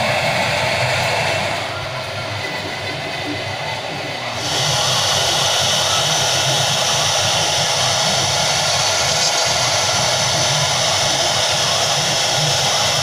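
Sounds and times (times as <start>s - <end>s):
router spindle cutting foam: 2.7s - 13.0s.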